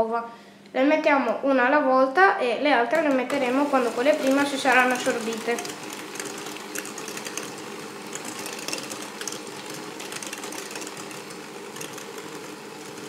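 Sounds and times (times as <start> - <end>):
electric hand mixer whirring: 2.9 - 13.0.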